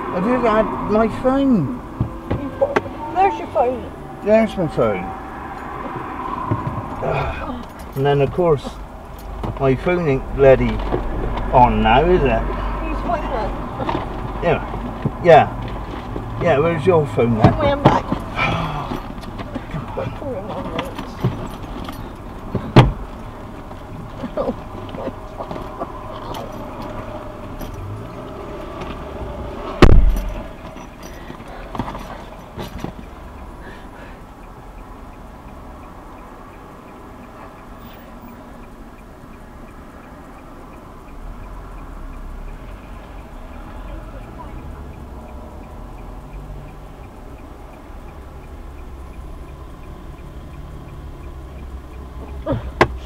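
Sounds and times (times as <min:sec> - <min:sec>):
car engine idling: 0:00.0 - 0:53.0
faint regular ticking: 0:03.2 - 0:53.0
heavy thump inside car: 0:06.4 - 0:07.0, 0:17.3 - 0:23.0, 0:29.8 - 0:30.8.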